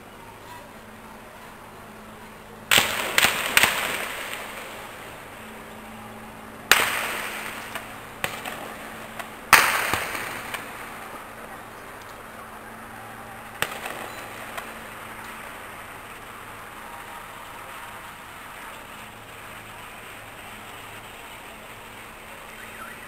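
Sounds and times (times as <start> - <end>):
gunshots echoing across a valley: 2.7 - 5.0, 6.7 - 11.2, 13.6 - 15.5.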